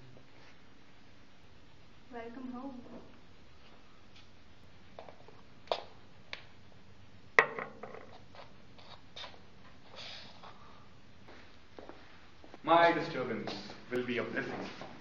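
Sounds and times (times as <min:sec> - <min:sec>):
hard objects knocking and clicking: 0:07.4 - 0:08.2.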